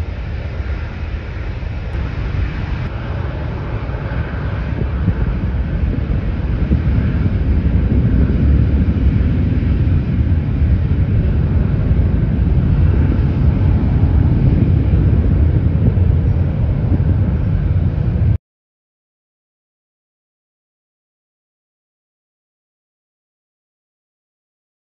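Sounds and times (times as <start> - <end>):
jet engines rumbling: 0.0 - 18.4.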